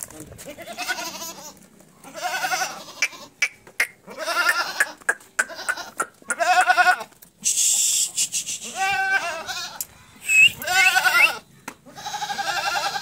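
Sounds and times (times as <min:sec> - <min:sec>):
goats bleating: 0:00.5 - 0:07.2, 0:08.6 - 0:09.9, 0:10.6 - 0:13.0.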